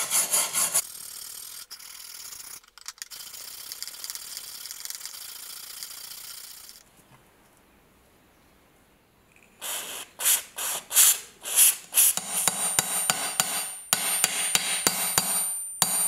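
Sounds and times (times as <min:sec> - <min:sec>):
wire brush scrubbing rust: 0:00.0 - 0:02.5, 0:09.6 - 0:14.4.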